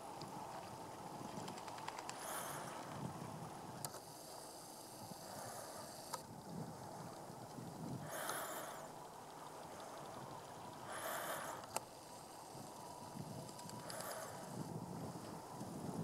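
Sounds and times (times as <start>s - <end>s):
low background rumble: 0.0s - 16.0s
camcorder zoom motor whirring: 3.8s - 6.3s, 8.0s - 15.7s.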